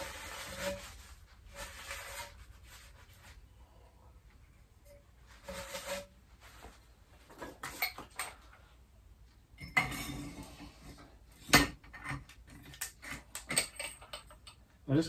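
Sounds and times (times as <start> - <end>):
metal scraping rub: 0.0 - 3.4, 4.9 - 6.8
metal clinks and knocks: 11.4 - 14.6.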